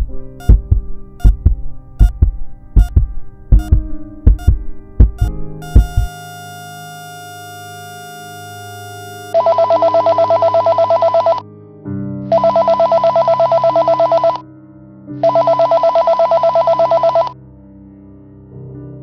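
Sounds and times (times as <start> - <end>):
mobile phone ringing: 5.2 - 11.4, 12.3 - 14.4, 15.2 - 17.4.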